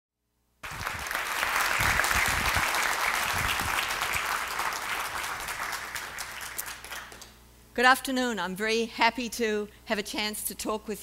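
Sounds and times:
audience applauding: 0:00.6 - 0:07.3.

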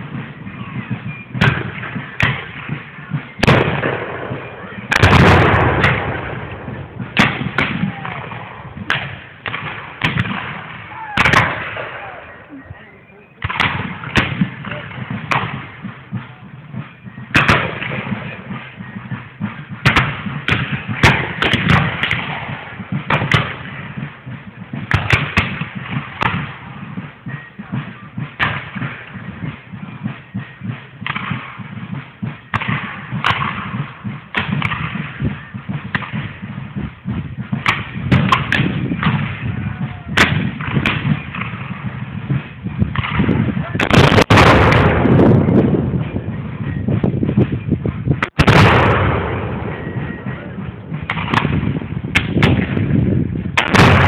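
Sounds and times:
black-powder gunshots: 0:00.0 - 0:12.5, 0:13.4 - 0:54.0.

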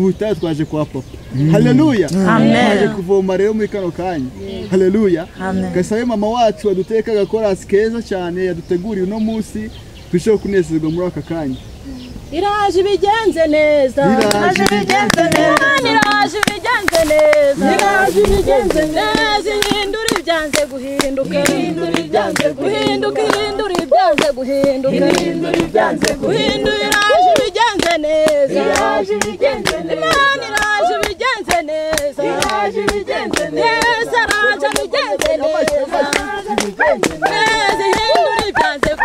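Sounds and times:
group singing in chorus: 0:01.3 - 0:03.1, 0:14.0 - 0:39.0
rhythmic hand clapping: 0:14.0 - 0:39.0.

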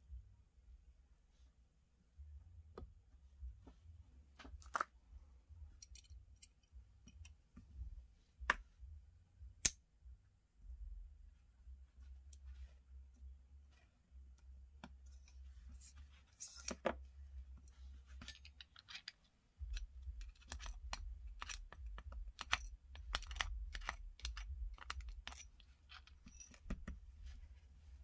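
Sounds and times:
small metal and plastic clicks: 0:05.8 - 0:07.4, 0:18.2 - 0:27.0
screwdriver turning screws: 0:18.4 - 0:26.7.

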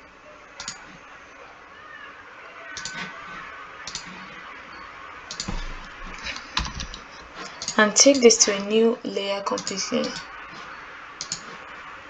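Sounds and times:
low room hiss: 0:00.0 - 0:12.0
computer mouse clicks: 0:00.6 - 0:00.9, 0:02.8 - 0:03.1, 0:03.8 - 0:04.3, 0:05.3 - 0:05.6, 0:06.3 - 0:08.3, 0:09.6 - 0:10.3, 0:11.2 - 0:11.6.

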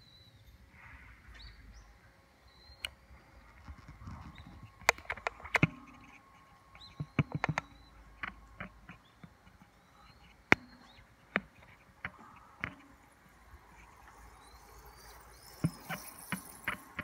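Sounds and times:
faint bird chirps: 0:00.0 - 0:17.0
handling clicks and knocks: 0:03.6 - 0:06.2, 0:06.8 - 0:13.9.

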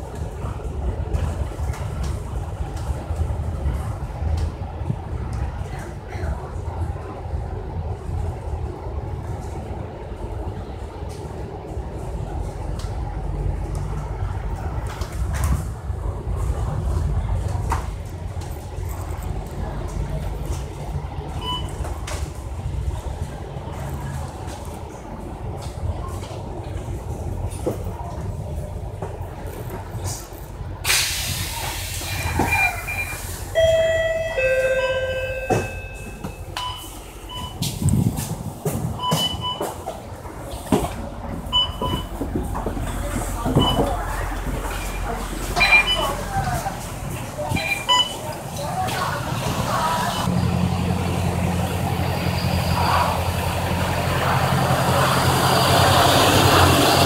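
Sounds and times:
bus engine idling: 0:00.0 - 0:57.0
electronic tones and beeps: 0:45.6 - 0:46.2.

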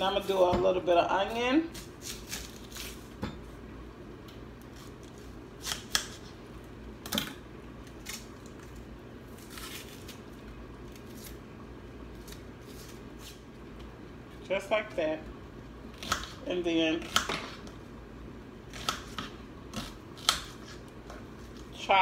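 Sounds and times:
onion skin peeling crackles: 0:01.2 - 0:03.1, 0:04.6 - 0:06.4, 0:07.8 - 0:11.4, 0:12.1 - 0:13.8
knife cutting onion on board: 0:04.7 - 0:06.3, 0:16.0 - 0:17.7, 0:18.7 - 0:21.2.

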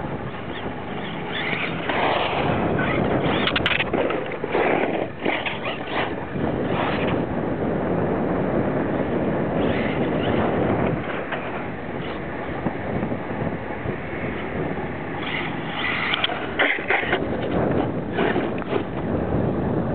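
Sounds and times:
wind on microphone: 0:00.0 - 0:19.9
remote control truck motor: 0:00.5 - 0:07.2, 0:09.6 - 0:10.5, 0:15.2 - 0:18.8.

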